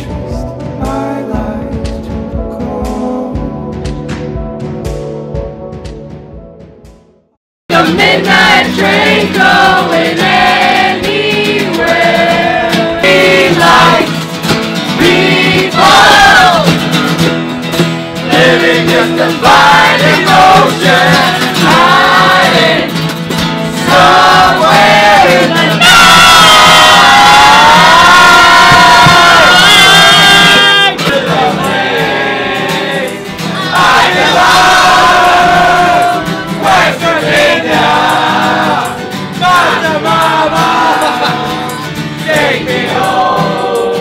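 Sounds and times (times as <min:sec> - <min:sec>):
group singing: 0:07.7 - 0:17.0, 0:18.2 - 0:44.0
acoustic guitar strumming: 0:07.7 - 0:44.0
ukulele strumming: 0:07.7 - 0:44.0.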